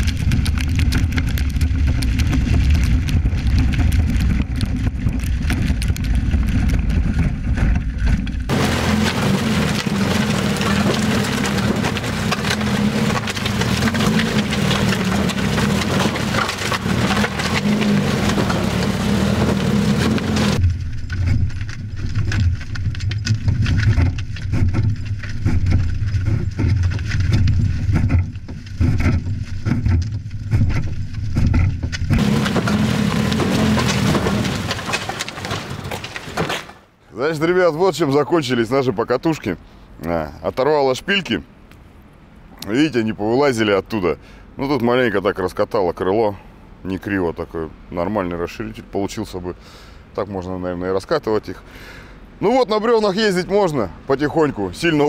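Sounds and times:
car engine running: 0:00.0 - 0:36.1
wooden wheels rumbling on asphalt: 0:00.0 - 0:41.5, 0:50.2 - 0:55.0.

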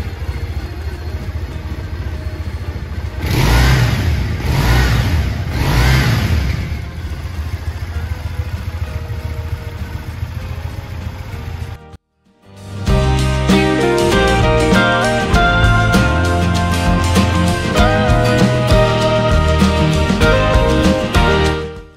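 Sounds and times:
motorcycle engine idling: 0:00.0 - 0:12.0
motorcycle engine revving: 0:00.0 - 0:12.0, 0:12.9 - 0:21.9.

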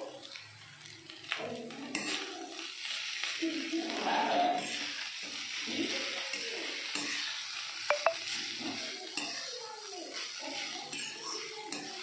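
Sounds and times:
rice sizzling in frying pan: 0:00.0 - 0:12.0
spatula scraping pan: 0:01.9 - 0:03.2, 0:04.0 - 0:07.6, 0:10.2 - 0:12.0
spatula clinking against pan: 0:07.9 - 0:08.4, 0:09.1 - 0:09.6, 0:10.6 - 0:12.0.

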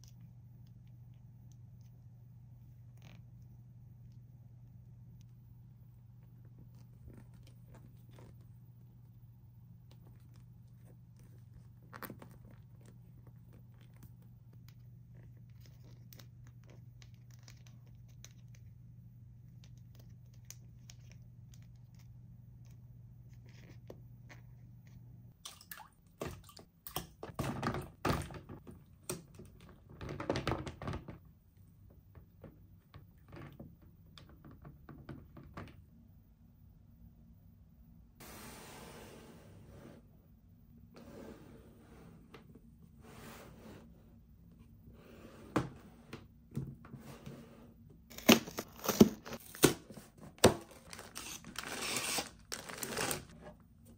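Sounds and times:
faint low hum: 0:00.0 - 0:51.8
packaging rustling and crinkling: 0:48.1 - 0:53.4.

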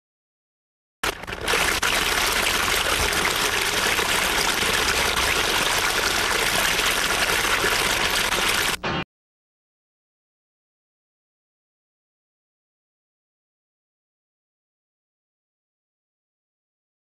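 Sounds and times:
water rushing over rocks: 0:01.0 - 0:08.8.

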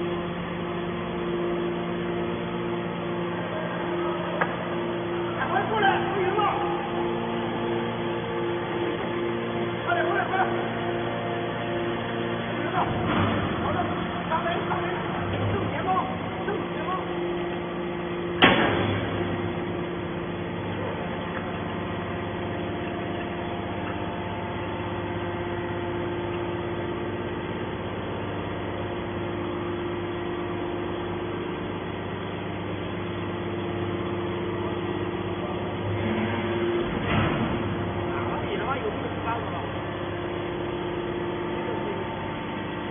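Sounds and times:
hydraulic baler humming: 0:00.0 - 0:42.9
sharp bang: 0:18.4 - 0:19.2.

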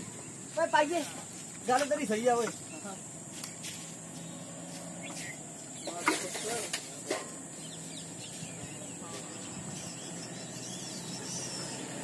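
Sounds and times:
steady high hiss: 0:00.0 - 0:12.0
faint bird chirps: 0:04.2 - 0:06.7, 0:07.5 - 0:12.0.

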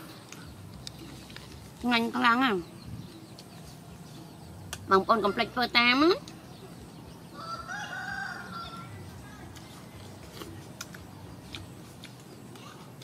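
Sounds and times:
rooster crowing: 0:07.3 - 0:09.0.

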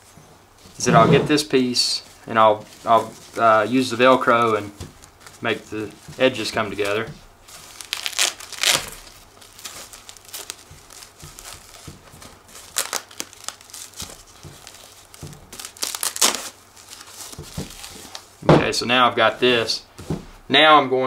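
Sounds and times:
fabric rustling and crinkling: 0:00.0 - 0:20.5
velcro rasps: 0:02.0 - 0:18.3.

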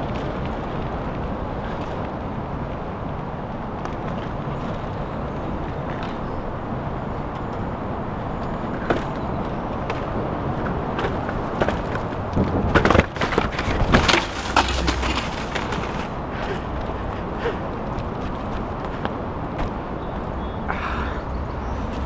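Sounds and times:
bike tyres rolling on dirt: 0:00.0 - 0:22.0
wind noise: 0:00.0 - 0:22.0
bike knocks and clatters: 0:08.4 - 0:17.2, 0:17.9 - 0:20.0.

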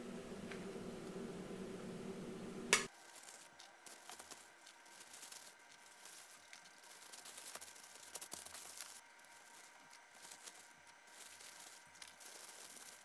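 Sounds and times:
low steady hum: 0:00.0 - 0:02.9
plastic bag crinkling: 0:02.9 - 0:13.0.

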